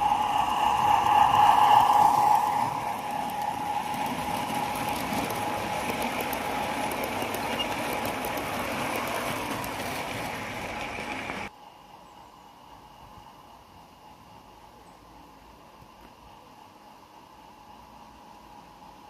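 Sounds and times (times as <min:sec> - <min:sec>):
model train wheels rumbling: 0:00.0 - 0:11.5.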